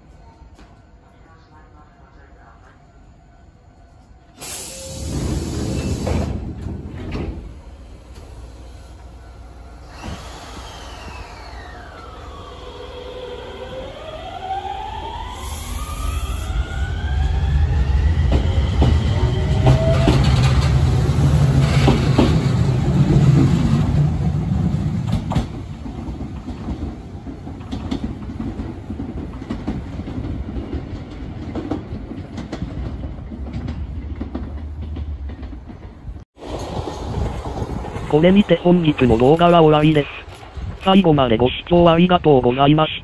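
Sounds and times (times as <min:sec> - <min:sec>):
train rumbling: 0:00.0 - 0:43.0
train motors whining: 0:09.0 - 0:17.5.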